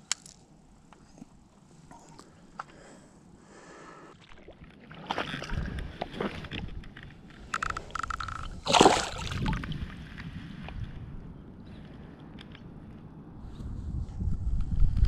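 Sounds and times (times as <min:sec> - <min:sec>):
shallow water sloshing and splashing: 0:04.1 - 0:11.0.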